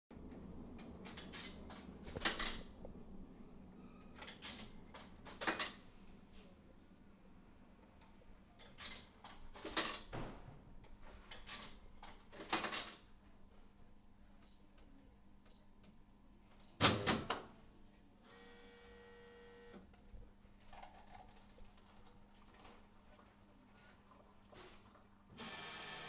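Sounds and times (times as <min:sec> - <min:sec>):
vending machine motor whirring: 0:25.4 - 0:26.0.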